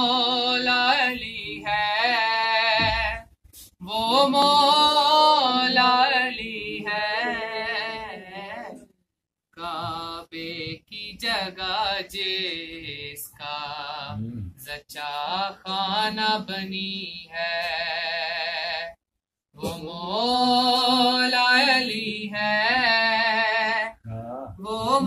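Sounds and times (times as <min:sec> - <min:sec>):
man singing unaccompanied: 0:19.6 - 0:25.0.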